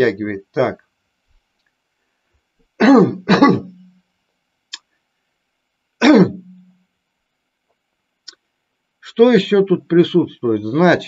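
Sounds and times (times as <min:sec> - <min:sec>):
faint clicks: 0:00.8 - 0:01.8
man's wordless vocal hum: 0:02.8 - 0:03.8, 0:06.0 - 0:06.6.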